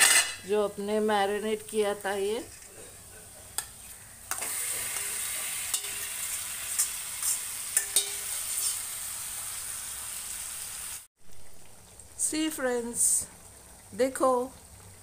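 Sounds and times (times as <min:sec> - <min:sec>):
chicken sizzling in oil: 0:03.0 - 0:15.0
steel spoon clinking and scraping: 0:05.7 - 0:06.1, 0:06.7 - 0:08.8.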